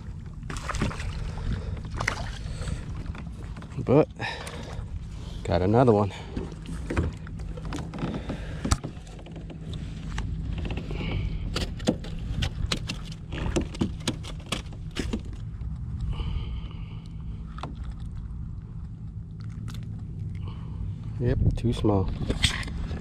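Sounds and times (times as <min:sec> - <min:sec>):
steady low rumble: 0:00.0 - 0:23.0
clicks and rattles of fish handling: 0:06.3 - 0:15.8.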